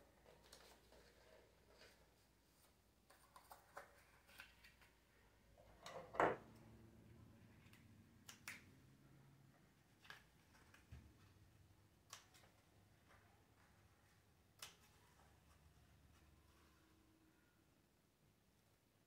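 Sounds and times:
paper rustling and folding: 0.0 - 5.2, 9.7 - 11.5.

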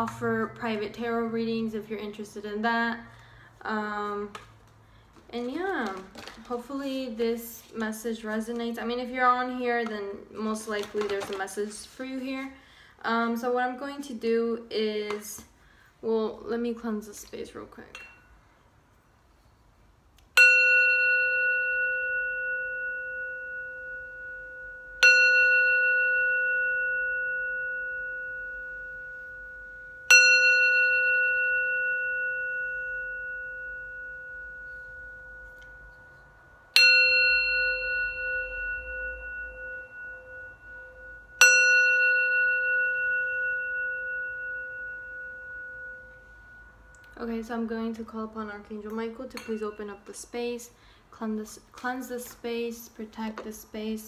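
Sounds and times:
singing bowl ringing: 20.4 - 50.9.

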